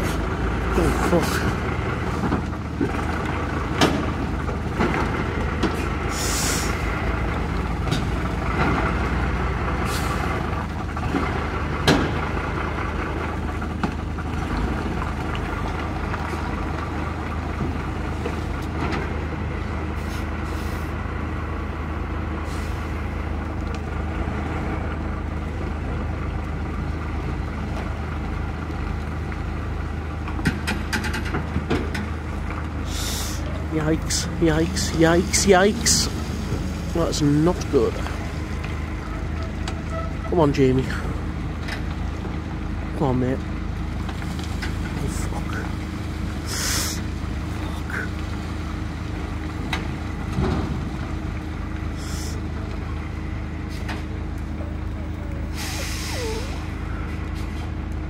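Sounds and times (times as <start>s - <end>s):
diesel lorry engine running: 0.0s - 58.0s
air brake hiss: 6.1s - 6.8s, 32.9s - 33.4s, 46.5s - 47.0s, 55.5s - 56.6s.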